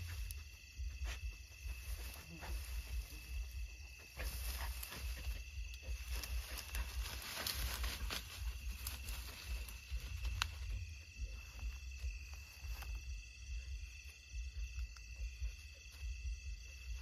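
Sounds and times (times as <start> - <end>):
faint rustles: 0.0 - 13.2
insects chirring: 0.0 - 17.0.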